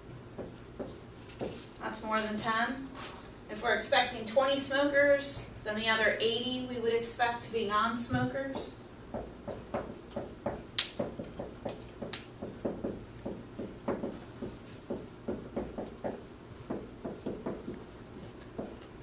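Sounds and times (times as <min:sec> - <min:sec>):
marker writing on whiteboard: 0:00.4 - 0:01.7, 0:08.2 - 0:19.0.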